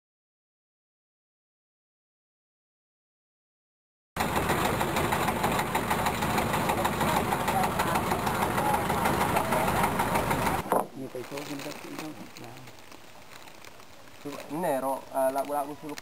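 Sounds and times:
boat engine running loudly: 4.2 - 10.6.

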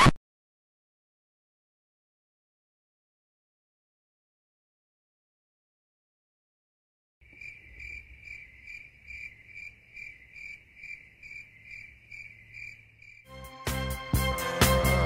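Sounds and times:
cricket chirping: 7.2 - 13.3
music: 13.3 - 15.0.

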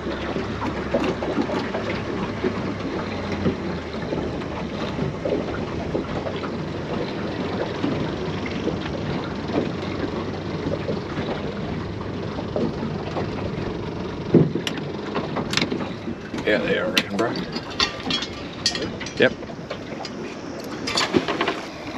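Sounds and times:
water lapping against boat hull: 0.0 - 21.9.

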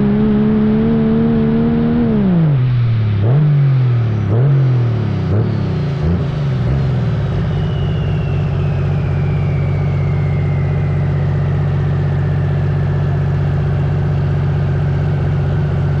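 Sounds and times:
turbo whine falling in pitch: 4.4 - 16.0
diesel engine idling: 5.0 - 16.0.

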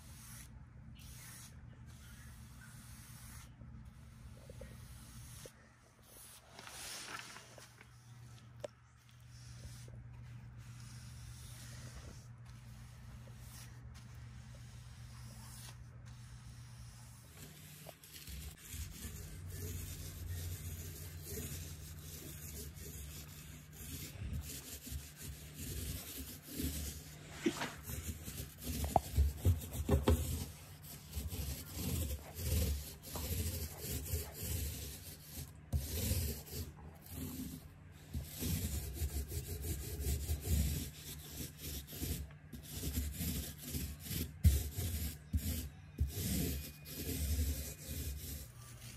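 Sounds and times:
paint roller rubbing strokes: 0.0 - 48.9.

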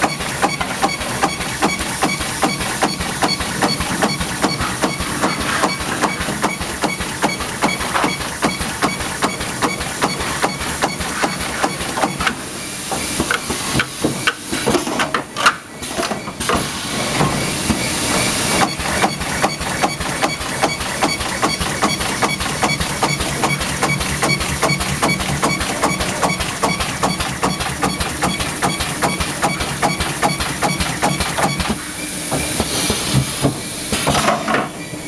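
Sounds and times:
welding machine hiss: 16.4 - 34.3
welding machine ticking: 18.7 - 31.7.

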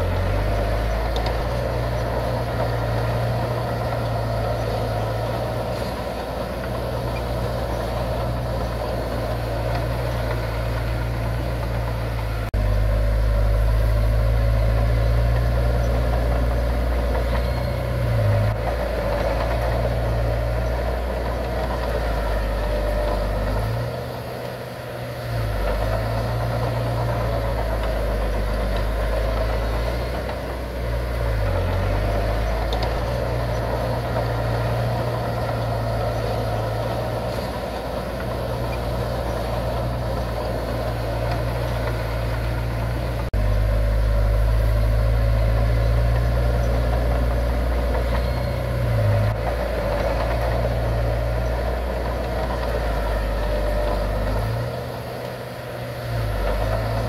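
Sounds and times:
heavy diesel machinery droning: 0.0 - 57.0.

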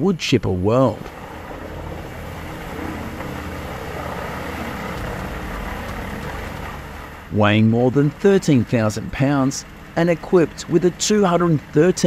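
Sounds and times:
wood chipper engine rumbling: 0.5 - 12.0
chipper chipping tree stems: 1.0 - 12.0.

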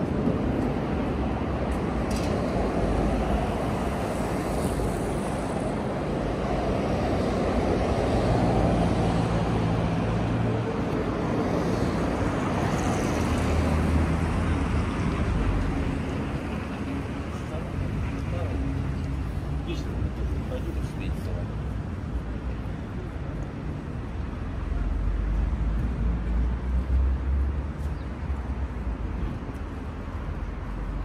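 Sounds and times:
passing cars: 0.0 - 31.0.

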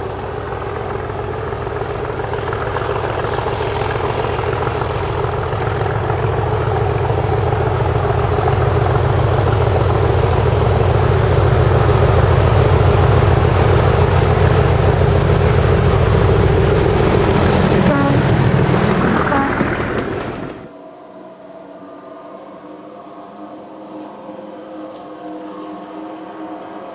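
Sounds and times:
diesel locomotive engine throbbing: 0.0 - 20.7.

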